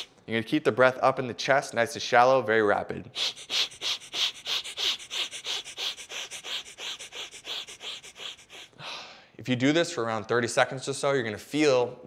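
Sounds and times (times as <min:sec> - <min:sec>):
man breathing rapidly through nose: 0:03.1 - 0:09.4.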